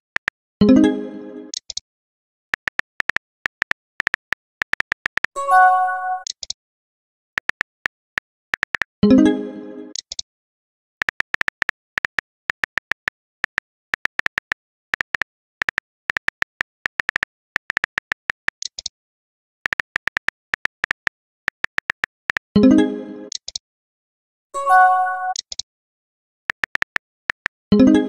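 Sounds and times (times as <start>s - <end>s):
keyboard clicks: 0.0s - 0.4s, 1.5s - 1.8s, 2.6s - 5.4s, 6.2s - 6.6s, 7.4s - 8.9s, 9.9s - 10.2s, 11.0s - 18.9s, 19.6s - 22.6s, 23.3s - 23.6s, 25.3s - 25.6s, 26.5s - 27.6s.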